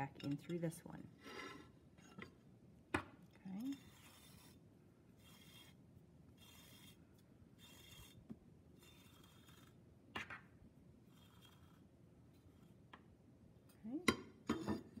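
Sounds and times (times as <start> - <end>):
yarn rubbing through tile hole: 3.6 - 4.6, 5.2 - 7.0, 7.6 - 8.2, 8.8 - 9.8, 11.0 - 12.9.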